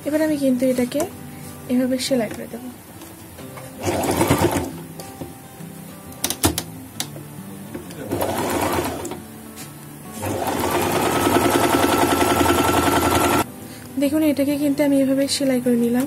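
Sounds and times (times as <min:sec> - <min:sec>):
sewing machine stitching: 0:03.8 - 0:04.7, 0:08.0 - 0:09.2, 0:10.2 - 0:13.4.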